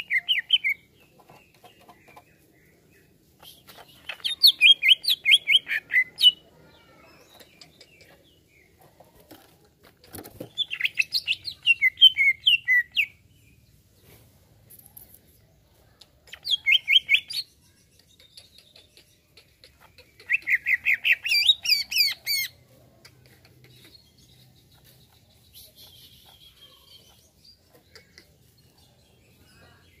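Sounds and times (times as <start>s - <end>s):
faint bird chips: 3.3s - 12.8s, 16.0s - 29.8s.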